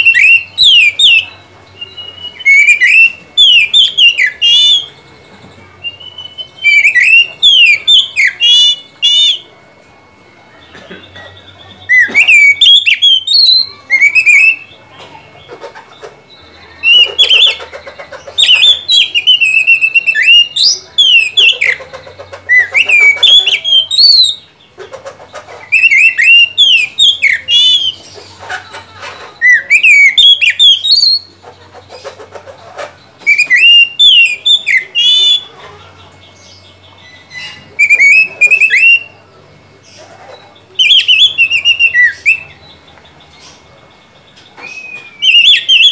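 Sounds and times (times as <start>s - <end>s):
bird singing whistled phrases: 0.0s - 5.0s, 5.8s - 9.5s, 11.4s - 14.8s, 18.4s - 21.9s, 22.5s - 24.5s, 25.7s - 28.0s, 29.3s - 31.3s, 33.2s - 35.5s, 36.6s - 39.2s, 40.8s - 42.9s, 44.6s - 45.9s.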